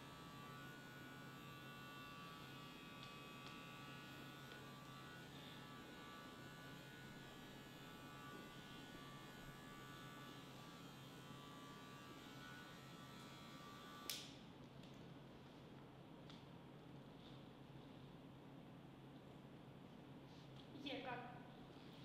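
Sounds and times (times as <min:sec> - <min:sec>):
electric hair clipper buzzing: 0:00.0 - 0:14.5.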